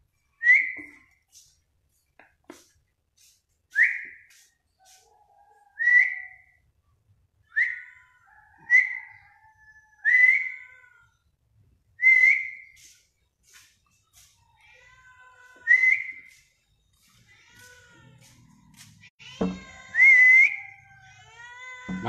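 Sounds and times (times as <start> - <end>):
person whistling rising calls: 0.4 - 1.0, 3.7 - 4.3, 5.8 - 6.6, 7.5 - 7.8, 8.7 - 9.2, 10.0 - 10.5, 12.0 - 12.8, 15.6 - 16.4, 19.9 - 20.6.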